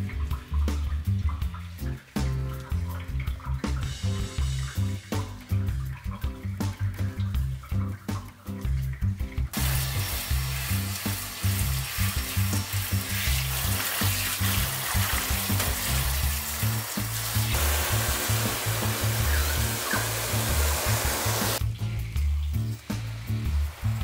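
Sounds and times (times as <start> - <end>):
background music with steady beat: 0.0 - 24.0
shower head spraying water: 9.6 - 21.6
water running into bathtub: 9.6 - 21.6.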